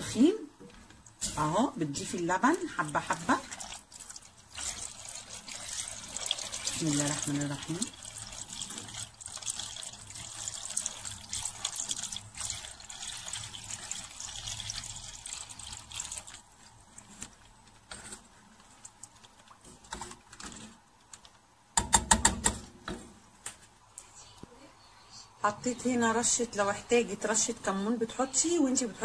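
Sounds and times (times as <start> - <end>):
soup sloshing while stirred: 2.6 - 20.6.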